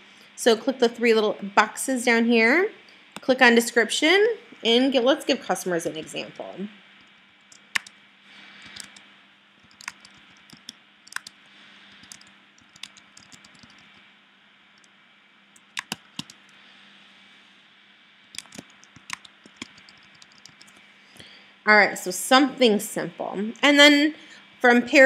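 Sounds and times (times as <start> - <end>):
computer keyboard typing: 7.5 - 8.0, 8.6 - 9.0, 9.6 - 14.0, 15.6 - 16.5, 18.3 - 20.8.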